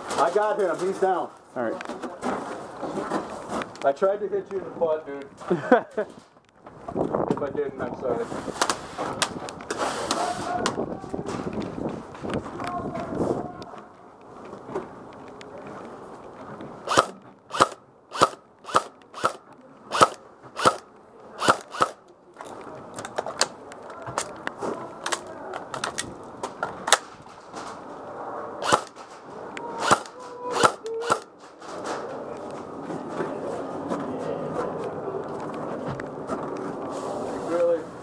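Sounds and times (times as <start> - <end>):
airsoft rifle shots: 16.9 - 22.0, 28.6 - 29.0, 29.8 - 31.3.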